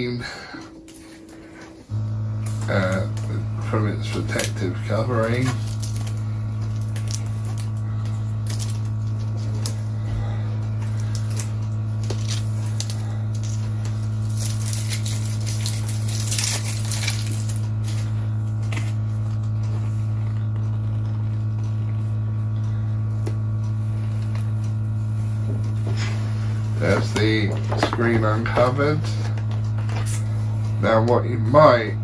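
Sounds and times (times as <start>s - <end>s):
loud steady low hum: 0.0s - 32.0s
plastic film rustling: 0.6s - 20.9s.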